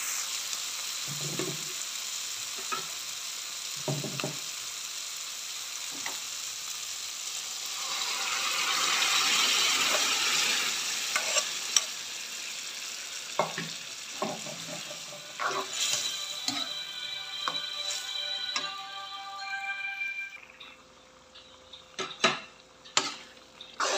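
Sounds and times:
vegetables sizzling in a wok: 0.0s - 23.9s
liquid poured into hot pan: 7.4s - 11.6s
metal ladle scraping and stirring: 15.4s - 16.6s.

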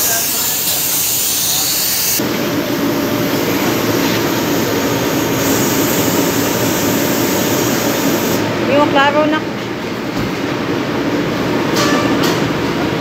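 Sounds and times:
loud whooshing machine: 0.0s - 8.7s.

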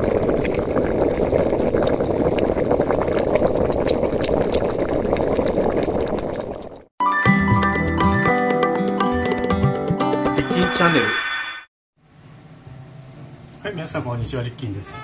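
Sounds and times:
liquid boiling and bubbling: 0.0s - 6.9s
music: 7.0s - 11.2s.

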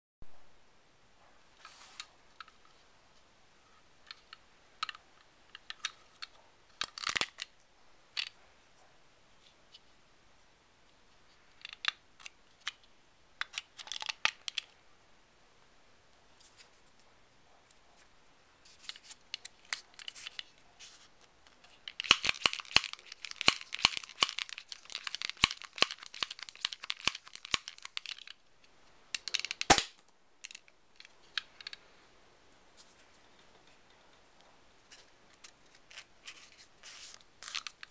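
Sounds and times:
plastic clicks and rustles: 4.0s - 8.4s, 11.3s - 14.8s, 18.6s - 20.6s, 21.2s - 31.8s, 34.9s - 37.9s
quick crackling clicks: 21.9s - 28.4s
sharp plastic snap: 29.2s - 30.1s.

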